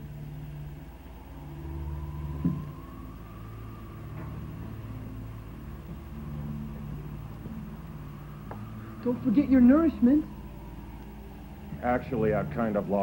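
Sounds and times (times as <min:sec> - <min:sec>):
low droning hum: 0:00.0 - 0:13.0.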